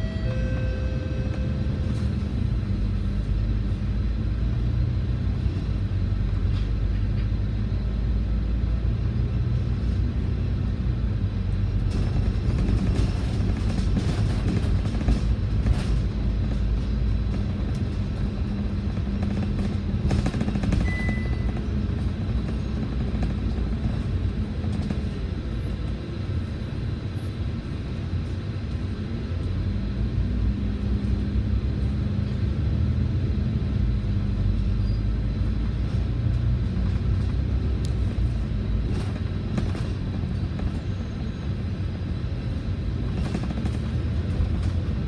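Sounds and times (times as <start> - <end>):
short high beep: 0.0 - 1.9, 20.8 - 21.5
bus diesel engine running: 0.0 - 45.0.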